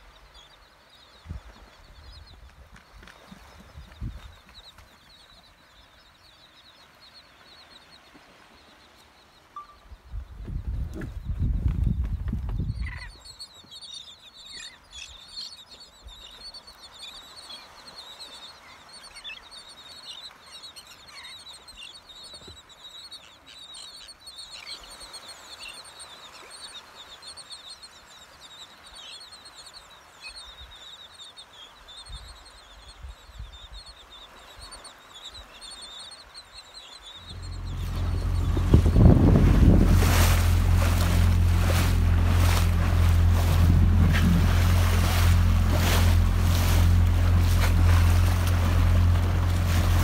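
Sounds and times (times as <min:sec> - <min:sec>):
seabirds calling: 0:00.0 - 0:50.0
wind gusts on microphone: 0:10.0 - 0:13.2, 0:37.2 - 0:50.0.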